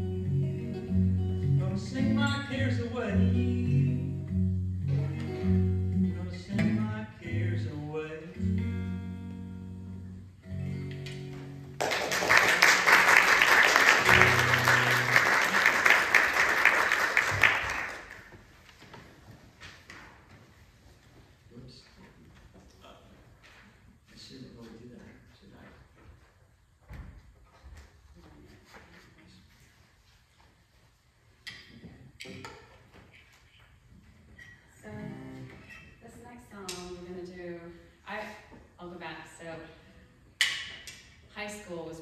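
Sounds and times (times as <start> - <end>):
acoustic guitar playing: 0.0 - 16.2, 34.8 - 36.2
audience applause: 11.8 - 18.4.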